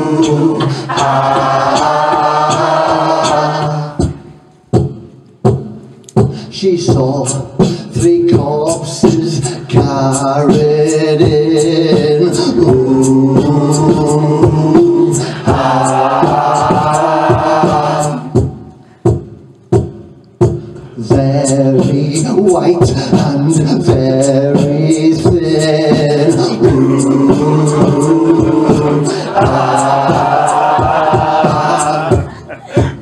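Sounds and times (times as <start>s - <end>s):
held wordless vocal notes: 0.0s - 4.7s, 6.3s - 19.0s, 20.8s - 33.0s
beatboxing clicks and pops: 5.0s - 6.4s, 18.6s - 20.5s.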